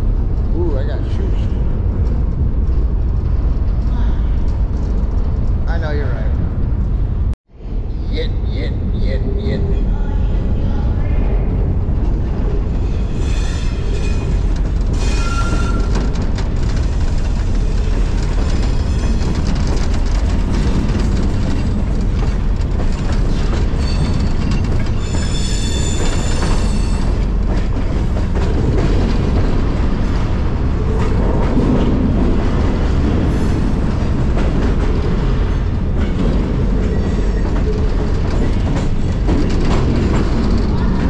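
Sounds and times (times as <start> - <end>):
train wheels rumbling on rail: 0.0 - 41.0
high-pitched wheel squeal: 12.9 - 14.4, 15.0 - 15.9, 25.0 - 27.2.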